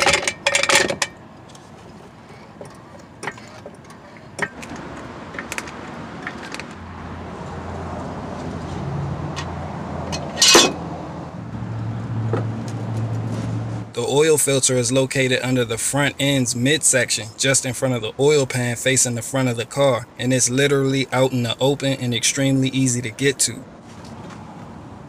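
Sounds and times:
loud metallic clank of jack stand: 0.0 - 1.2, 10.1 - 10.8.

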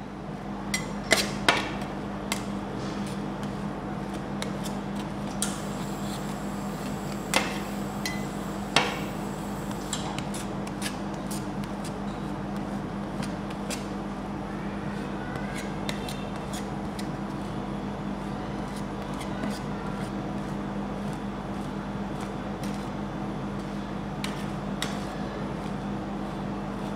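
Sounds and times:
steady low hum: 0.0 - 26.9.

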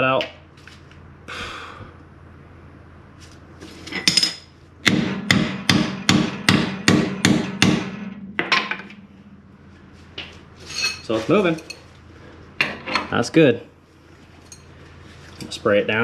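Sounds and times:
hammer striking metal bolt: 4.8 - 9.0.

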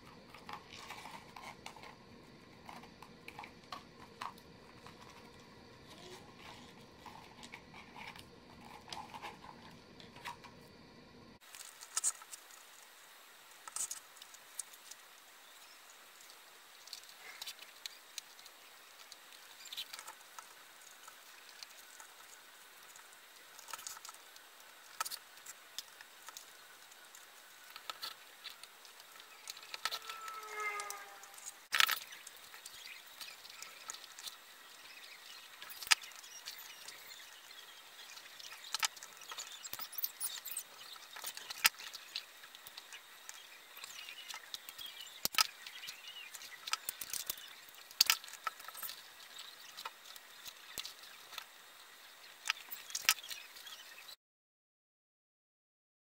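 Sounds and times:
brief squeaky tone: 29.8 - 31.7.

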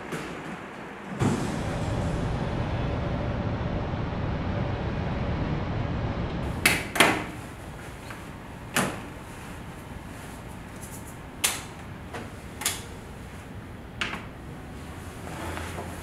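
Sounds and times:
low rumble: 1.2 - 6.6.

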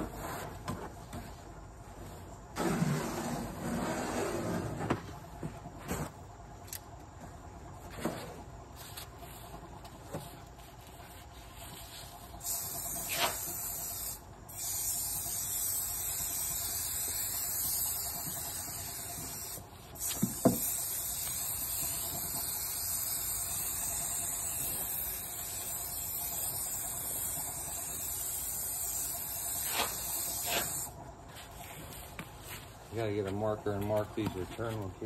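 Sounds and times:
spray gun hissing: 12.3 - 31.0.

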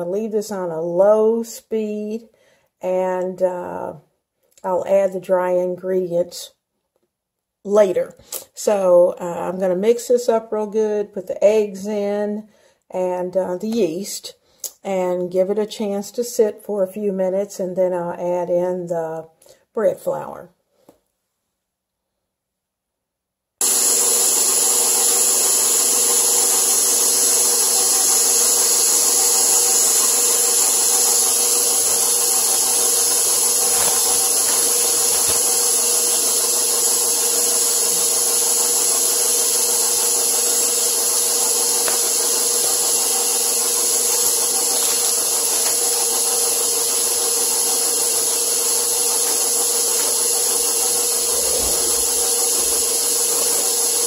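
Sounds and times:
stand mixer running: 23.6 - 54.0.

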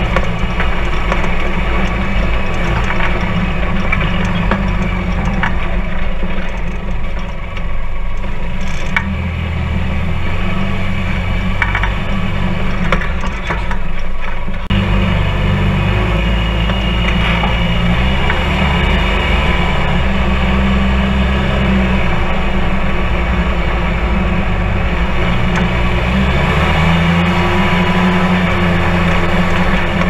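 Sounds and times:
clicks and rattles: 0.0 - 9.2, 11.6 - 14.8
engine drone: 0.0 - 30.0.

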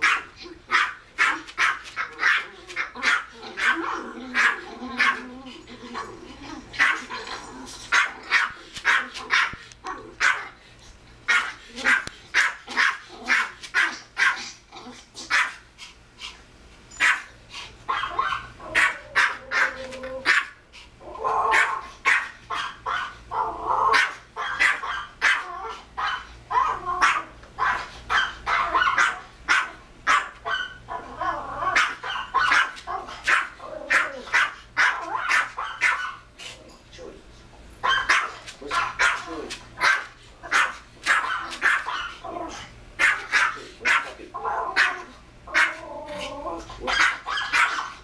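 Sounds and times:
dog growly barking: 0.0 - 10.6, 11.3 - 15.6, 17.9 - 36.3, 37.8 - 48.0
small dog barking sharply: 23.9 - 25.4, 37.8 - 42.2.

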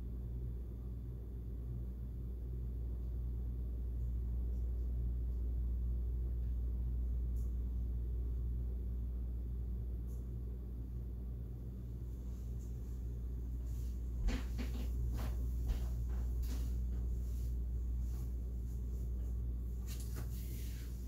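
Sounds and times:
low background rumble and hum: 0.0 - 21.0.

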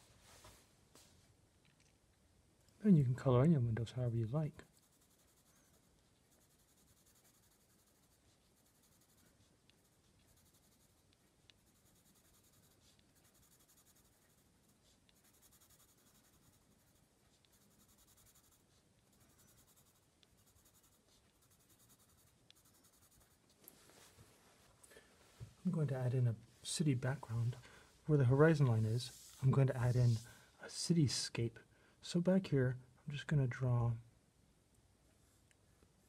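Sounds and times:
pencil point ticks: 4.6 - 23.3
pencil scratching on card: 4.6 - 23.4.

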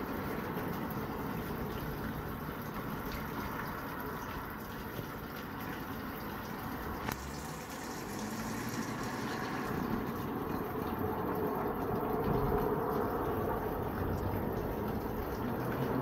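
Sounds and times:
running water: 0.0 - 16.0
car driving past: 7.1 - 16.0.

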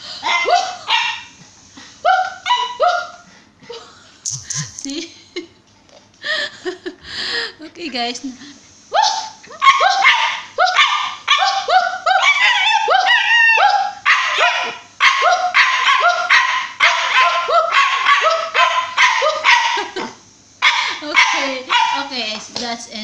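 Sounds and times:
dog barking and yipping: 0.2 - 1.4, 2.0 - 3.2, 9.0 - 22.2
woman imitating dog barks: 2.0 - 3.2, 8.9 - 22.2.

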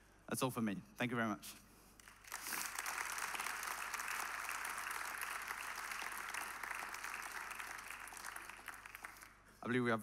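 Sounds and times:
audience clapping: 2.0 - 9.4.

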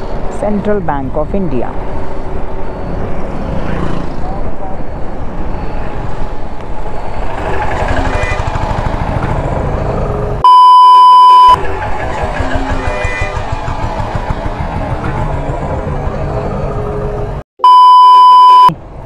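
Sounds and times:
motorcycle engine running: 7.0 - 10.4, 11.5 - 17.4
high censor bleep: 10.4 - 11.6, 17.6 - 18.7.

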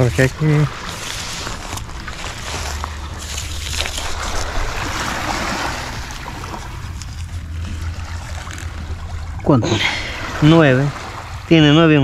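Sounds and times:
surf on pebbly beach: 0.0 - 7.2, 9.7 - 12.0
wind rumble on microphone: 0.0 - 12.0.

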